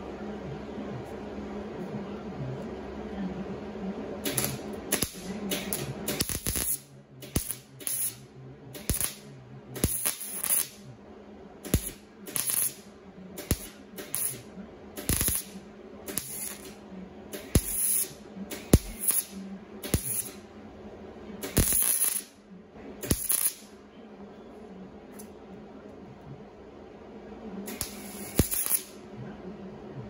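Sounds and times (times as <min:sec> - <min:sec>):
steady hum: 0:00.0 - 0:30.0
welder crackling in short bursts: 0:04.2 - 0:08.2, 0:08.8 - 0:10.8, 0:11.6 - 0:12.8, 0:13.4 - 0:20.4, 0:21.4 - 0:22.3, 0:23.0 - 0:23.7, 0:27.7 - 0:29.0.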